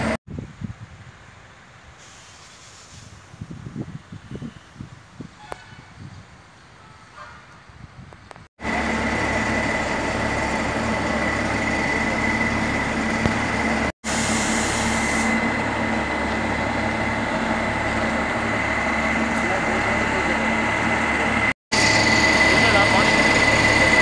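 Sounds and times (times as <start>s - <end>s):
mechanical hum and drone: 8.2s - 24.0s
high whine: 8.6s - 24.0s.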